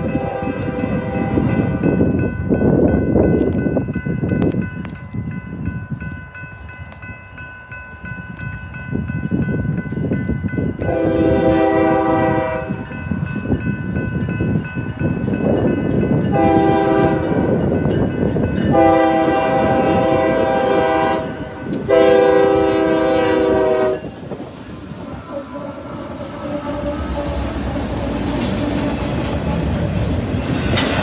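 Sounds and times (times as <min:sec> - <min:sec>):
locomotive horn blasts: 0:00.0 - 0:01.9, 0:10.8 - 0:12.9, 0:16.3 - 0:17.5, 0:18.7 - 0:24.2, 0:25.3 - 0:27.6
locomotive engine rumbling: 0:10.8 - 0:31.0
train wheels clattering on rails: 0:13.0 - 0:31.0.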